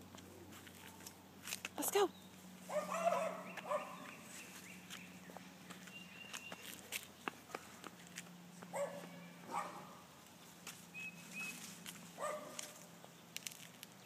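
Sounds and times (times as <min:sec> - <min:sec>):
dogs barking faintly: 0:02.7 - 0:04.4, 0:08.6 - 0:10.1, 0:12.2 - 0:12.9.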